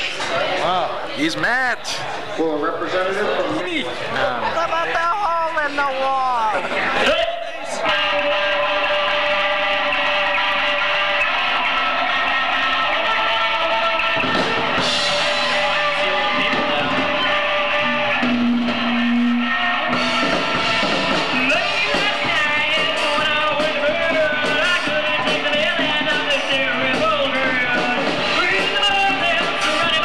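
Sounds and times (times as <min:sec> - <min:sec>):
drum kit: 0:07.8 - 0:30.0
electric guitars: 0:07.8 - 0:30.0.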